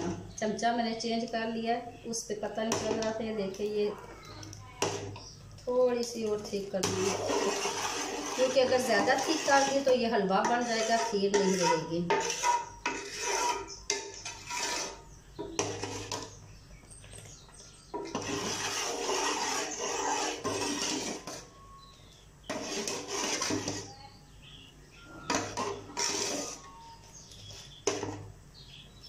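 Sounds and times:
metal ladle scraping a pot: 4.8s - 5.4s, 6.3s - 16.4s, 18.0s - 21.6s, 22.4s - 24.0s, 25.2s - 28.2s.

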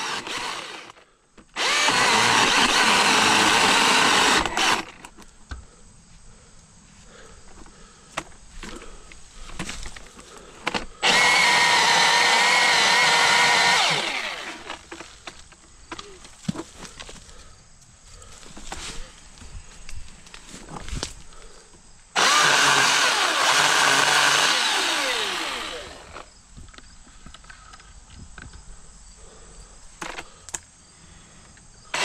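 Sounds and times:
electric chainsaw cutting wood: 0.0s - 5.1s, 10.7s - 15.1s, 22.2s - 26.3s.

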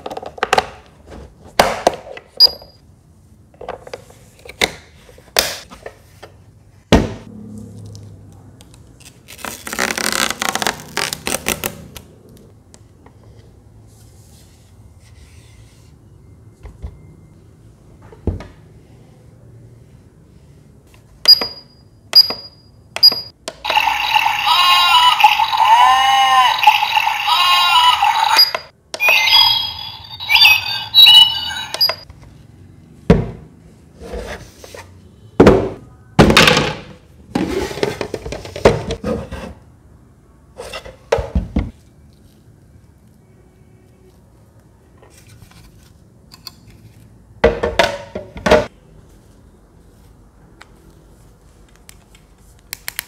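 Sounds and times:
chirping tones from speaker: 26.7s - 32.0s
electronic button beeps: 28.2s - 32.0s.

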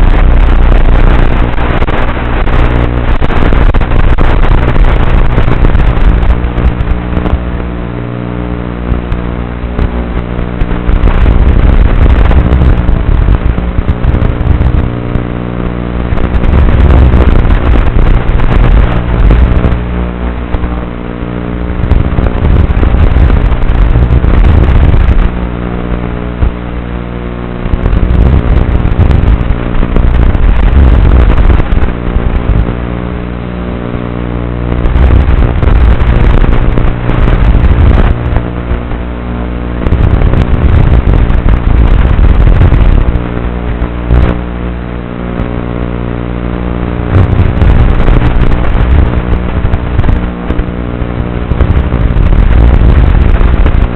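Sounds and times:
steady hum: 0.0s - 53.9s.

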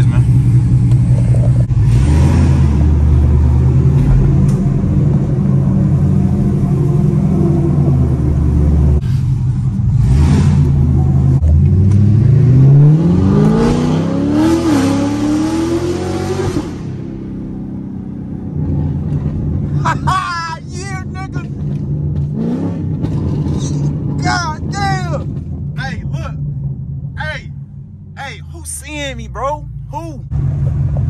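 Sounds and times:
car engine revving from inside: 10.0s - 17.0s.

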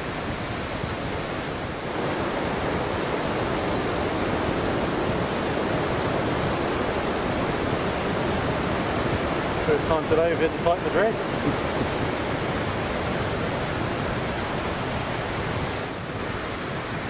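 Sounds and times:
surf on sandy beach: 0.0s - 17.0s
wind on microphone: 0.0s - 17.0s.

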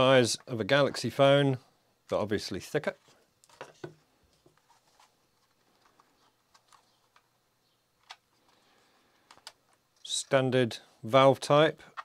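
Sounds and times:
faint plastic clicks and taps: 9.2s - 10.1s.

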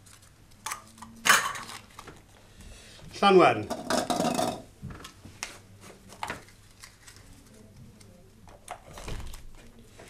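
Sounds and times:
faint room hum: 0.0s - 10.0s.

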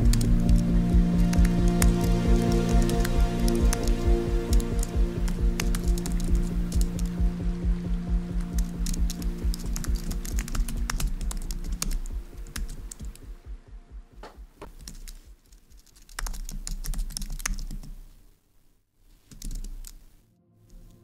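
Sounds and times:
fast typing on keyboard: 0.0s - 7.1s, 8.4s - 13.2s, 14.7s - 18.0s, 19.3s - 20.1s
soft background music: 0.0s - 18.1s, 19.4s - 21.0s.

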